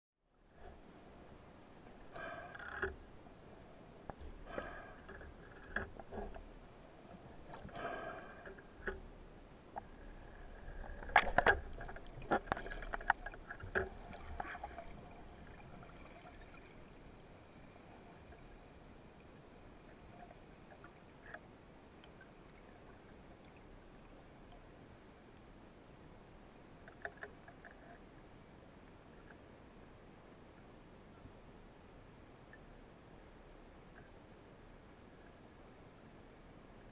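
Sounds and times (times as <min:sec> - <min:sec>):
faint steady hiss: 0:00.2 - 0:36.9
underwater scraping and knocking: 0:01.9 - 0:03.1, 0:04.1 - 0:09.1, 0:09.8 - 0:16.9.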